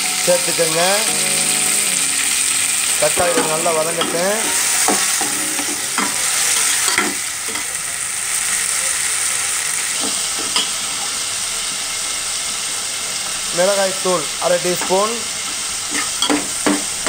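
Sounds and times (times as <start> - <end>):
food sizzling in hot oil: 0.0 - 17.0.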